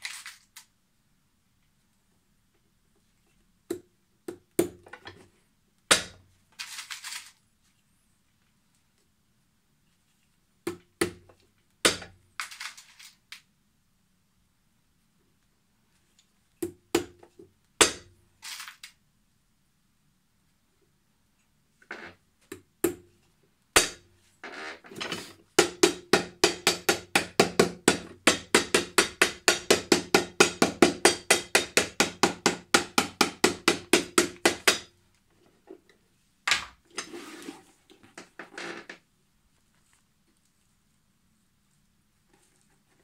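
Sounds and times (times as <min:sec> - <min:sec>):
hammer striking nails into sole: 0:23.8 - 0:24.0, 0:25.6 - 0:34.9.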